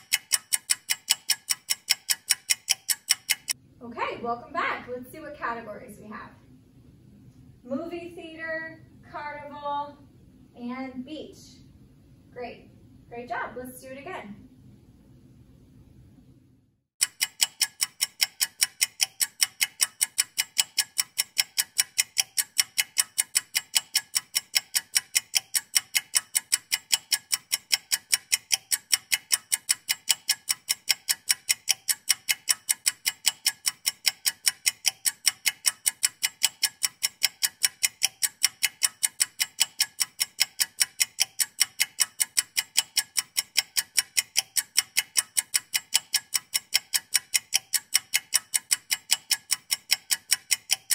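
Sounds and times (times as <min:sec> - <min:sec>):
fast clock ticking: 0:00.0 - 0:03.6, 0:17.0 - 0:50.9.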